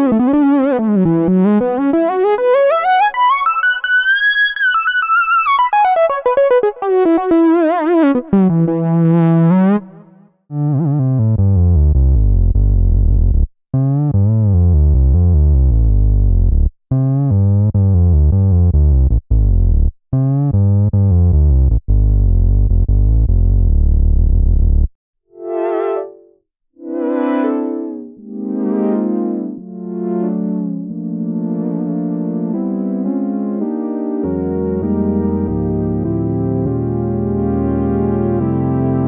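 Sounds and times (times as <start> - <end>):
deep synth bass notes: 5.8 - 24.9, 27.9 - 39.0
synth lead sliding down in pitch: 26.8 - 33.0.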